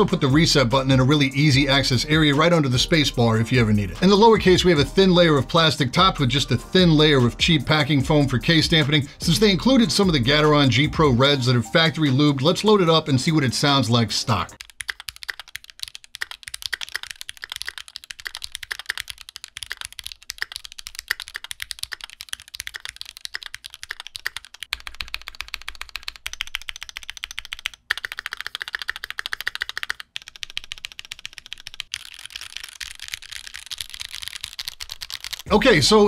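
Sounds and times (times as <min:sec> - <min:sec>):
mechanical keyboard typing: 0:14.3 - 0:35.5.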